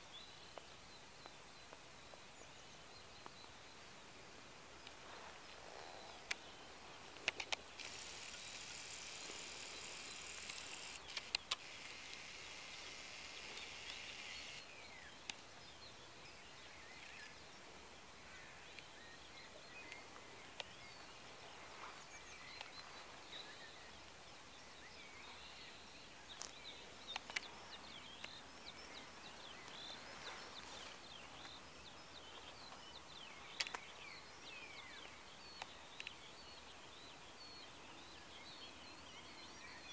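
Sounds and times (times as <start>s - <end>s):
distant bird calls: 4.8s - 39.9s
camera handling clicks: 7.2s - 14.6s.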